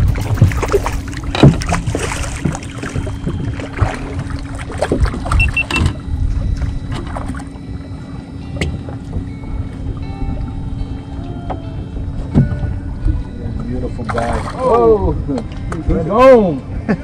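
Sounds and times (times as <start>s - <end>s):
knocks and bumps: 0.0s - 3.9s
boat engine hum: 0.0s - 17.0s
short electronic beeps: 5.4s - 5.9s.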